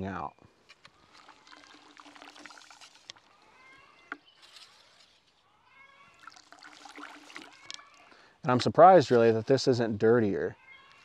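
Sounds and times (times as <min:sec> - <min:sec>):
water trickling into a bucket: 0:00.8 - 0:05.0, 0:05.7 - 0:08.8
faint squeaky sounds: 0:03.2 - 0:06.5, 0:07.1 - 0:11.0.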